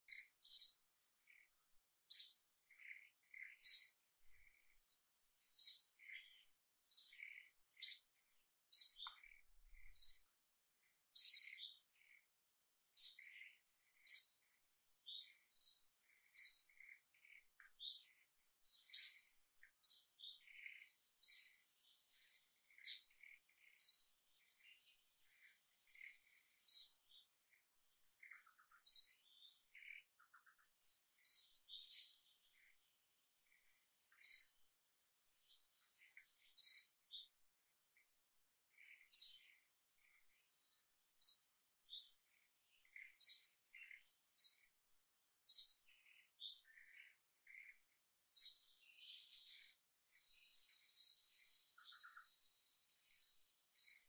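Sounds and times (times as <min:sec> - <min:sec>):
small bird chirping: 0:00.0 - 0:54.0.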